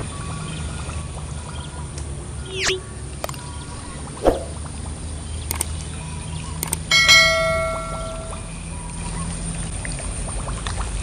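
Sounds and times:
sharp clicks: 0:02.6 - 0:04.5, 0:05.5 - 0:05.8, 0:06.6 - 0:08.2
short swoosh: 0:03.8 - 0:04.6
bell chime: 0:06.6 - 0:08.5.

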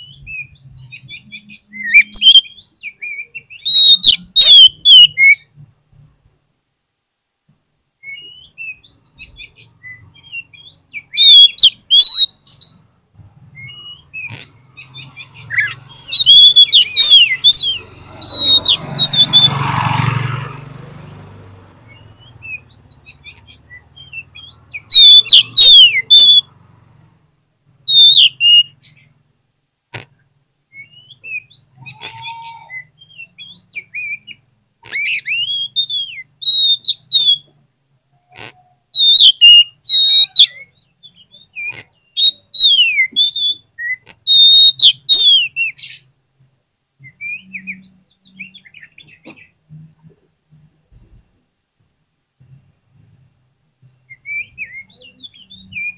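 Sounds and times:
bird singing whistled phrases: 0:00.0 - 0:05.5, 0:08.0 - 0:12.8, 0:13.6 - 0:19.5, 0:21.9 - 0:26.5, 0:27.9 - 0:28.8, 0:32.3 - 0:34.4, 0:35.0 - 0:37.5, 0:39.0 - 0:46.0, 0:47.0 - 0:49.0, 0:54.1 - 0:55.9.

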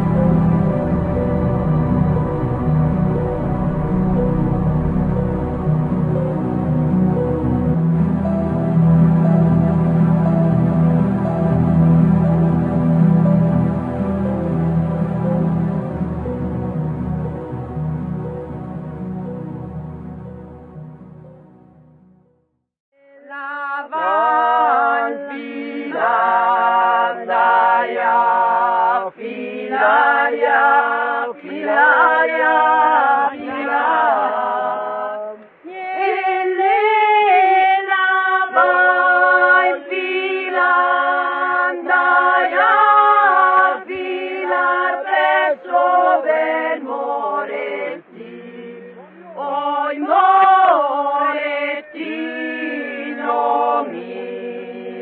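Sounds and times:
women singing unaccompanied folk song: 0:23.0 - 0:55.0.

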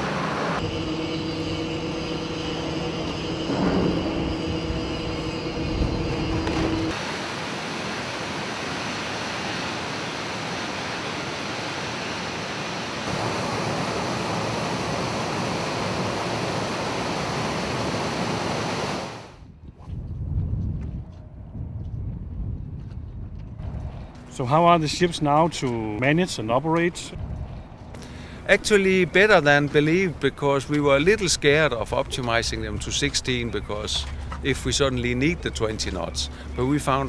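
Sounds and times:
machine hum with held tones: 0:00.1 - 0:07.0
water rushing and churning: 0:02.7 - 0:19.4.

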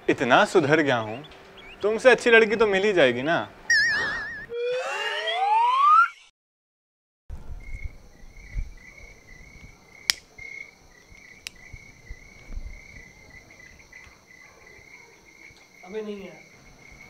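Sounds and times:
crickets chirping: 0:07.3 - 0:17.0
cigarette lighter clicks: 0:10.0 - 0:10.3, 0:11.2 - 0:11.6.

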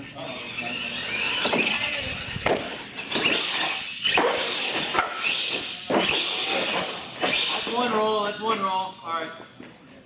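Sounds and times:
rc truck motor whining: 0:00.0 - 0:08.1.

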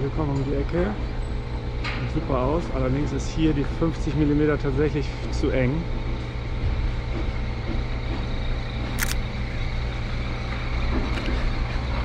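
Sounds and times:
camera shutter click: 0:09.0 - 0:09.2.

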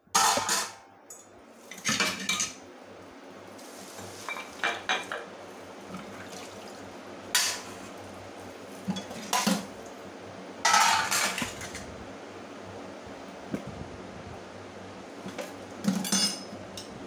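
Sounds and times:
dishes clattering in steel sink: 0:00.1 - 0:02.6, 0:04.2 - 0:05.3, 0:07.3 - 0:07.8, 0:08.9 - 0:09.7, 0:10.6 - 0:11.8, 0:15.3 - 0:16.9.

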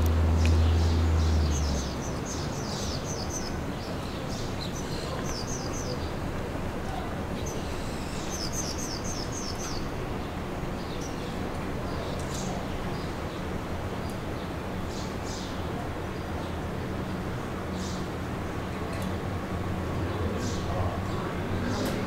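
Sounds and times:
city noise hiss: 0:00.0 - 0:22.0
small birds chirping: 0:00.4 - 0:06.3, 0:06.9 - 0:16.6.

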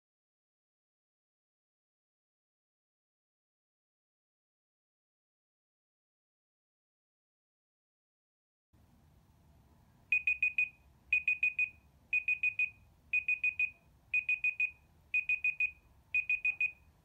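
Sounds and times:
high-pitched alarm beeps: 0:10.1 - 0:16.9.

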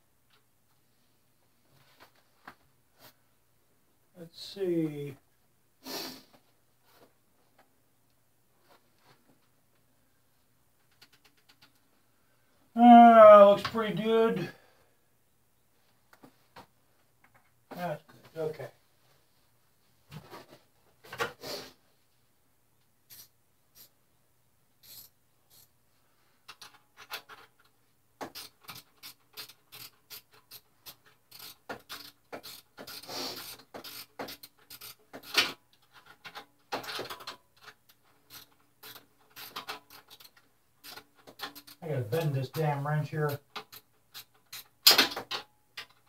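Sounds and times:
wrench scraping rasps: 0:28.2 - 0:35.6, 0:37.6 - 0:41.8.

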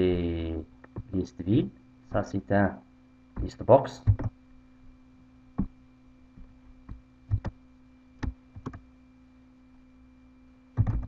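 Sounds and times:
low electrical hum: 0:00.0 - 0:11.0
keyboard and mouse clicks: 0:03.4 - 0:04.4, 0:06.9 - 0:07.6, 0:08.2 - 0:08.8, 0:10.8 - 0:11.0.

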